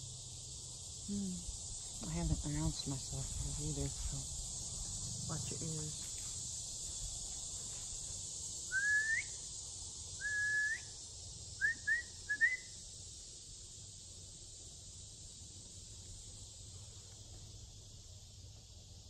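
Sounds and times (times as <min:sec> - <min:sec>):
high insect buzz: 0:00.0 - 0:19.0
person whistling loudly: 0:08.7 - 0:09.3, 0:10.2 - 0:10.9, 0:11.6 - 0:12.7.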